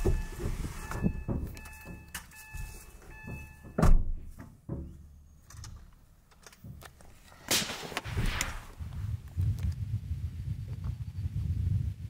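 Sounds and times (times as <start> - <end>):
rustling noise: 0.0 - 3.6, 6.7 - 11.1
faint crack: 6.5 - 9.8
rifle shot: 7.5 - 8.8.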